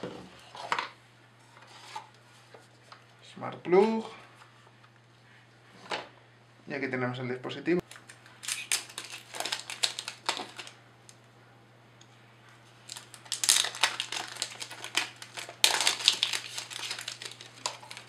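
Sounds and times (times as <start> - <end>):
packaging crinkling and rustling: 7.9 - 10.8, 12.8 - 18.0.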